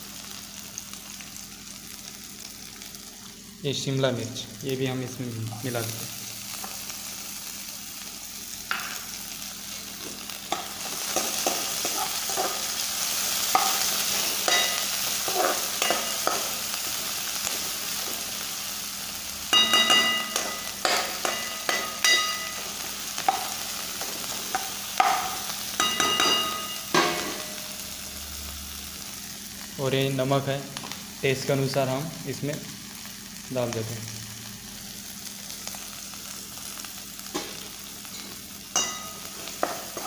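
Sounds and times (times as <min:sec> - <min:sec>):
vegetables sizzling in a pan: 0:00.0 - 0:40.0
spoon clanking on a pan: 0:10.5 - 0:12.6, 0:13.5 - 0:16.5, 0:19.5 - 0:23.6, 0:24.5 - 0:27.6, 0:37.4 - 0:40.0
metal spoon scraping a pan: 0:10.5 - 0:12.7, 0:13.5 - 0:16.5.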